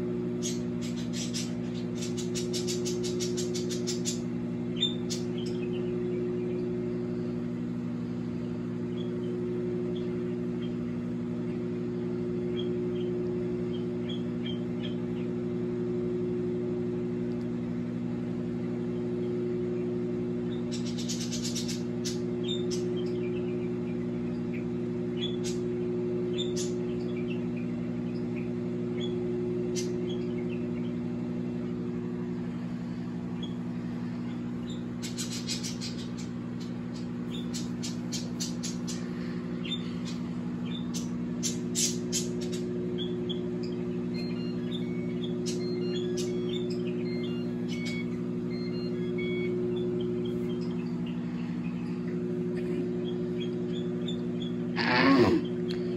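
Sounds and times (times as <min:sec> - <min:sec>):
microwave oven humming: 0:00.0 - 0:55.9.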